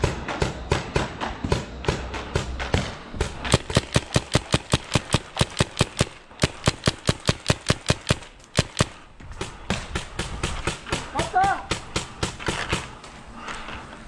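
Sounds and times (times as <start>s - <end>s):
paintball markers firing rapidly: 2.3s - 13.0s.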